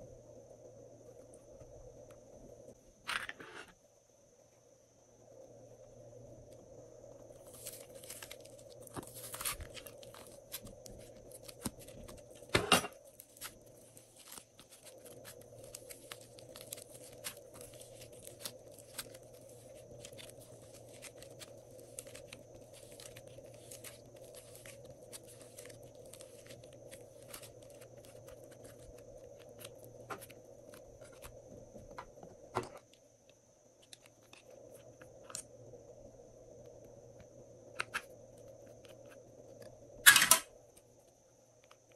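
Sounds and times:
hands squishing modelling clay: 7.3 - 32.2.

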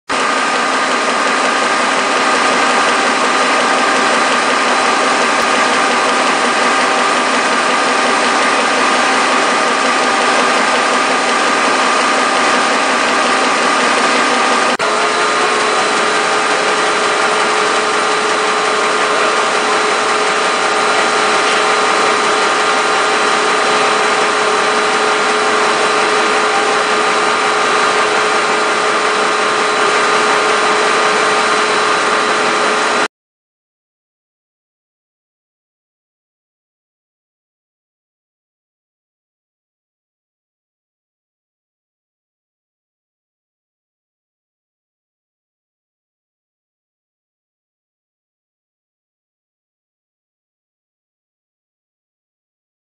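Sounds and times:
printing press whirring: 0.1 - 33.1.

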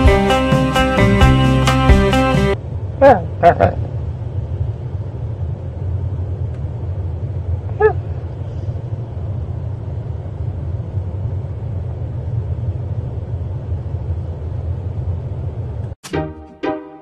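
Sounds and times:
car engine and road rumble: 2.6 - 16.0.

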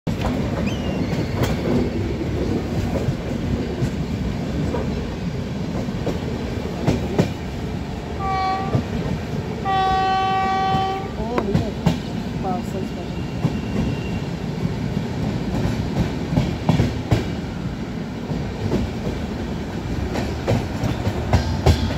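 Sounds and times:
train rumbling on track: 0.0 - 21.9
rail joint clacks: 0.1 - 7.6, 8.2 - 17.5, 18.2 - 21.9
locomotive horn blasts: 8.2 - 8.8, 9.6 - 11.1.

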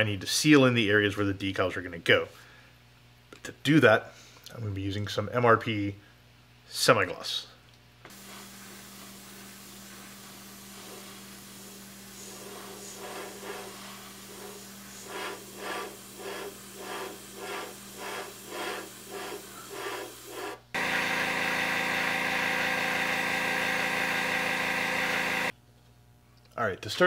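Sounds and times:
airbrush spraying in pulses: 8.1 - 20.8
air compressor hum: 8.1 - 25.6.

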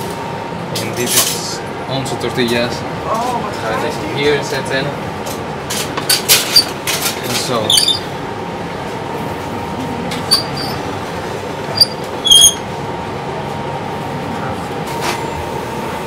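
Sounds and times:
short high squeaks: 7.7 - 8.1, 10.2 - 10.8, 11.8 - 12.7.

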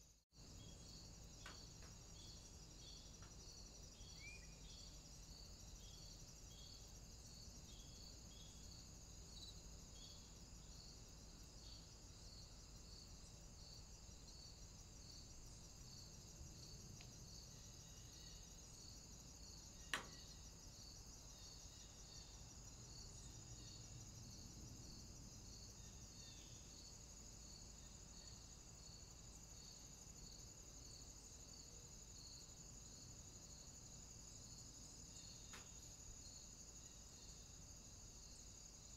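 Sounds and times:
faint high-pitched chirping: 0.5 - 10.8.

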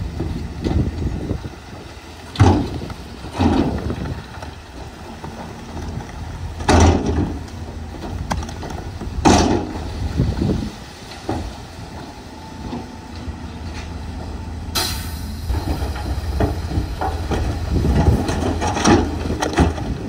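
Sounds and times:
rock and dirt sliding: 0.0 - 14.4, 15.5 - 20.0
diesel engine humming: 0.0 - 20.0
heavy crashes: 14.8 - 20.0.

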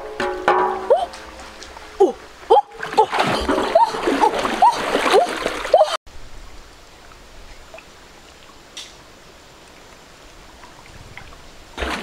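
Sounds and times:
water splashing: 0.0 - 6.0, 9.7 - 12.0
stream trickling: 0.0 - 12.0.

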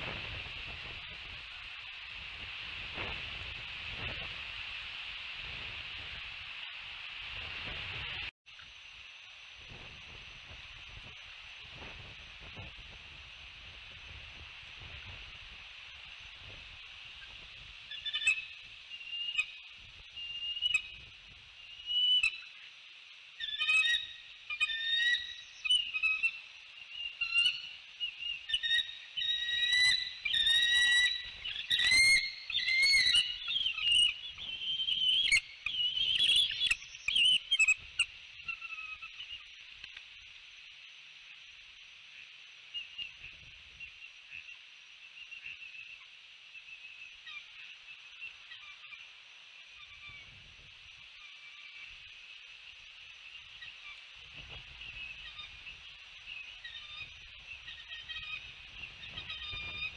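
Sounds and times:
eagles whistled chirps: 23.4 - 39.4.

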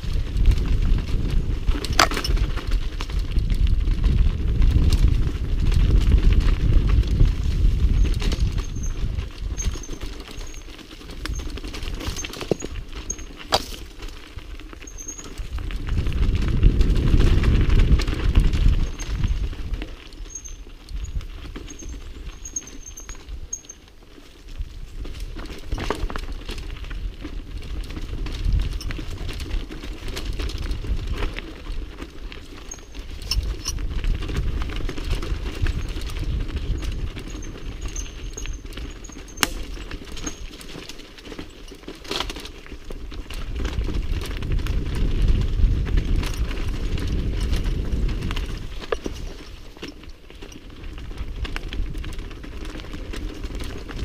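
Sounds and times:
bike rattling and clicking: 0.0 - 54.0
tyres crunching over stones: 1.1 - 3.1, 5.8 - 20.4, 32.1 - 54.0.

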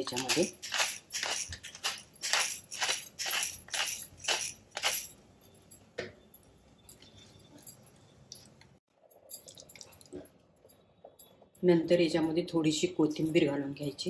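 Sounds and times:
pepper grinder crunching: 0.0 - 5.1.

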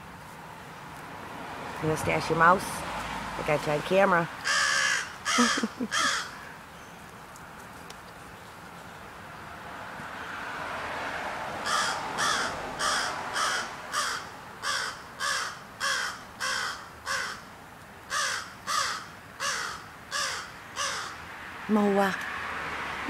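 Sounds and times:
crow cawing: 4.4 - 6.6, 11.6 - 17.5, 18.1 - 21.2.

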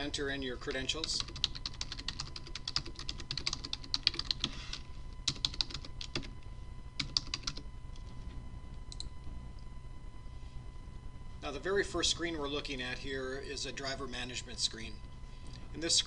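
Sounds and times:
typing on computer keyboard: 1.1 - 4.5, 5.3 - 6.3, 7.0 - 7.6.

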